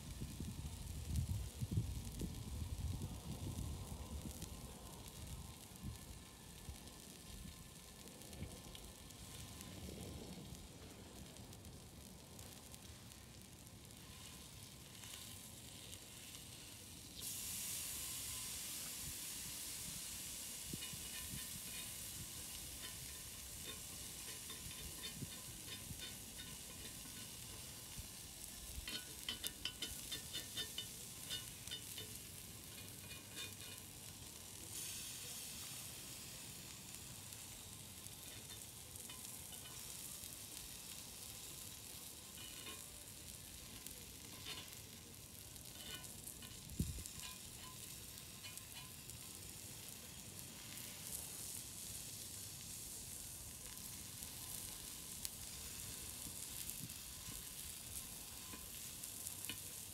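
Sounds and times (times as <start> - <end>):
meat sizzling on a griddle: 0.0 - 59.9
metal knife scraping griddle: 20.8 - 27.9, 28.9 - 34.0, 42.2 - 42.9, 44.2 - 44.9, 45.6 - 49.0.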